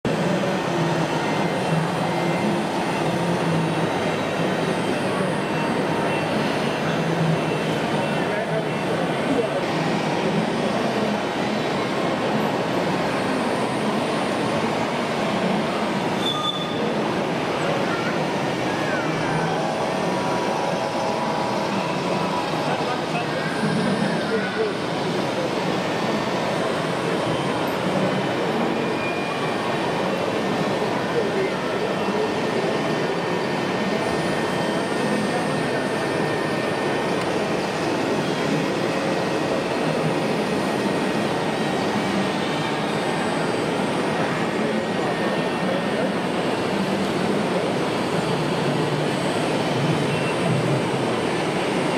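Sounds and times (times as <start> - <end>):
background hubbub: 0.0 - 51.9
busy hall crowd din: 0.0 - 51.9
faint high whine: 0.6 - 51.9
brief high squeal: 16.1 - 17.0, 28.8 - 29.6, 50.0 - 50.6.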